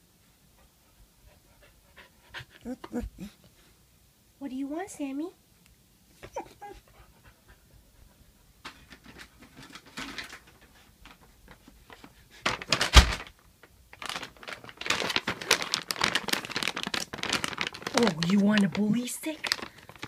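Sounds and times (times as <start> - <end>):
dog panting: 0.5 - 3.6, 6.3 - 8.6
plastic bag crinkling: 9.6 - 20.0.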